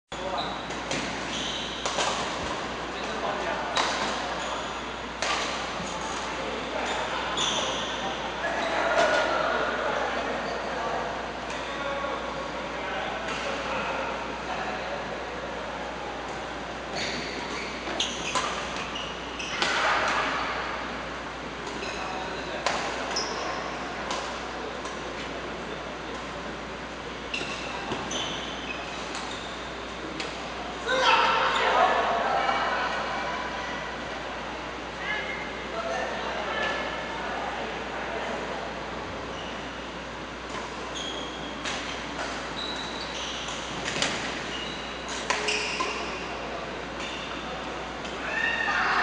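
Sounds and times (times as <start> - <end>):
shoe squeaks on court floor: 0.2 - 2.3, 6.8 - 8.8, 16.9 - 19.9, 21.8 - 22.4, 23.1 - 23.8, 27.3 - 29.8, 40.9 - 41.6, 42.5 - 46.3, 47.0 - 47.4.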